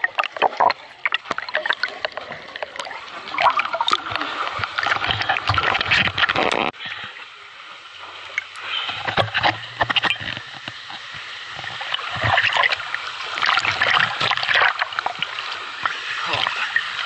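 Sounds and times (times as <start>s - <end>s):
water splashing from swimming: 0.0s - 17.0s
small waterfall rushing: 12.8s - 17.0s.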